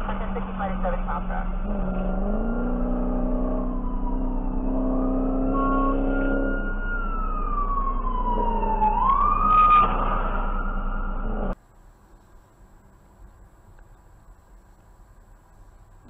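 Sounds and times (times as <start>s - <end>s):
emergency siren wailing: 0.0s - 11.6s.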